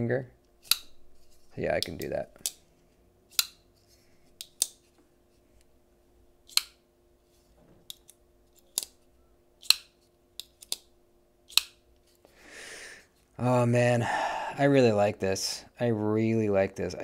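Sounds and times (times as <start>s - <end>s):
folding knife clicking: 0.6s - 0.9s, 6.5s - 6.8s, 7.9s - 9.0s, 9.6s - 10.9s, 11.5s - 11.8s.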